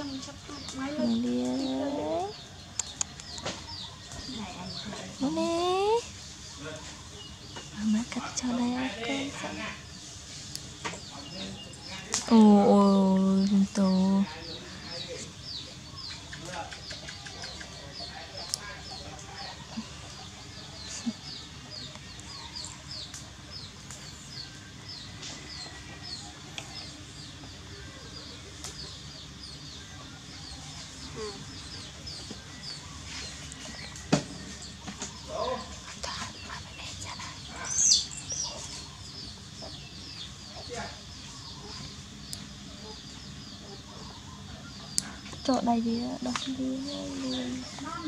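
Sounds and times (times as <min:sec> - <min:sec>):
chickens chirping: 0:00.0 - 0:48.0
chickens clucking: 0:14.5 - 0:36.4, 0:37.4 - 0:48.0.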